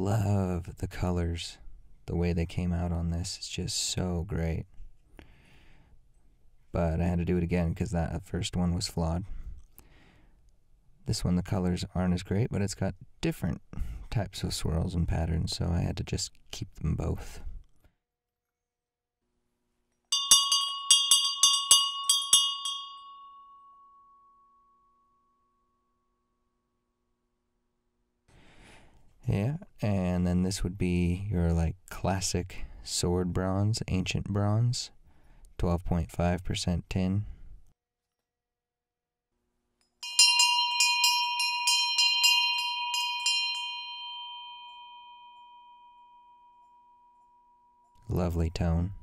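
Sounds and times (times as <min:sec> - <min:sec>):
small bell struck rapidly: 0:20.1 - 0:25.1, 0:40.0 - 0:48.0
bell tone humming: 0:20.1 - 0:26.1, 0:40.0 - 0:48.1.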